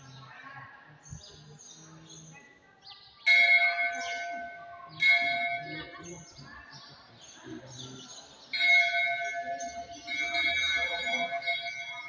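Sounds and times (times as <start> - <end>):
faint voices murmuring: 0.0 - 12.0
temple bell ringing: 3.3 - 6.3, 8.5 - 12.0.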